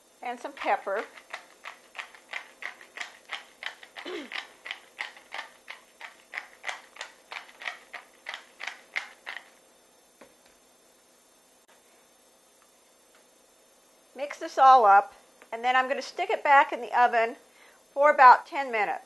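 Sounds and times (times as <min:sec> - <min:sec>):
pepper mill grinder clicking: 0:01.0 - 0:09.5.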